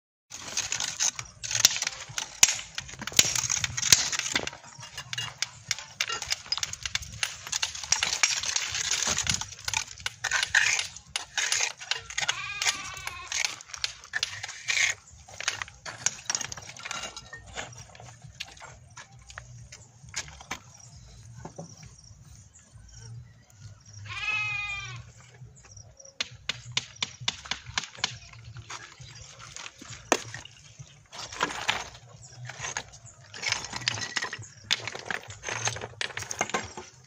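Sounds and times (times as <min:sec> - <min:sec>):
trowel scraping mortar: 0:00.3 - 0:19.0
wavering bleat: 0:12.1 - 0:13.3, 0:24.0 - 0:25.1.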